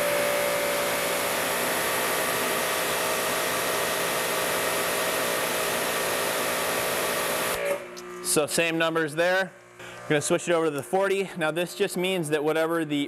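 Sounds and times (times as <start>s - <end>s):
pressure washer motor whine: 0.0s - 10.9s.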